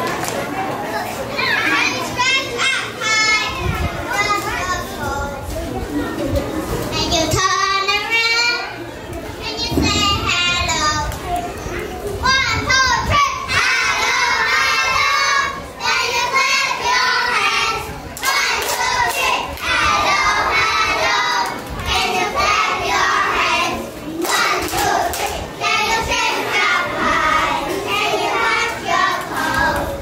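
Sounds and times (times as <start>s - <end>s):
children singing together: 12.6s - 30.0s.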